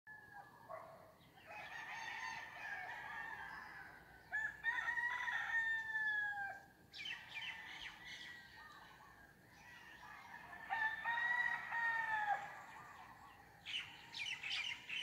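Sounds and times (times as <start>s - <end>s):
rooster crowing: 1.4s - 6.7s, 10.0s - 12.8s.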